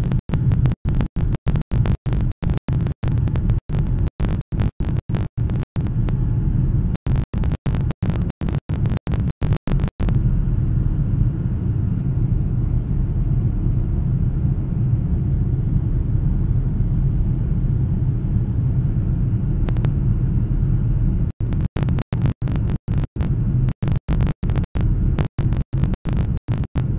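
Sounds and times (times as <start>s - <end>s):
aircraft cabin engine rumble: 4.8s - 9.2s, 10.1s - 25.2s.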